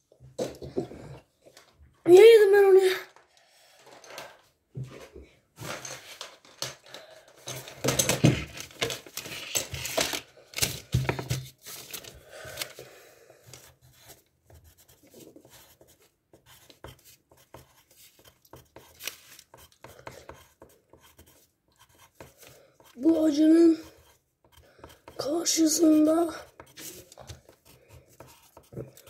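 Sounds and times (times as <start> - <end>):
paper rustling and tearing: 8.5 - 12.8, 18.9 - 19.5.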